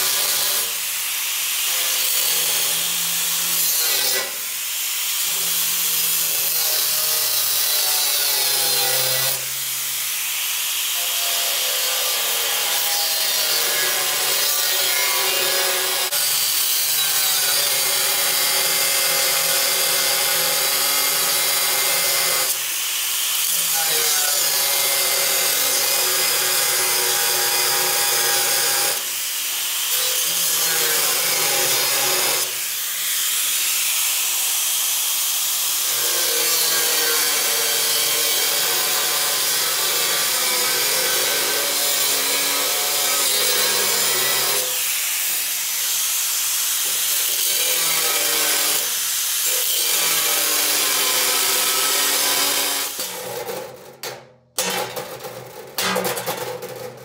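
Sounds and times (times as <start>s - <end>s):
angle grinder cutting steel: 0.0s - 53.5s.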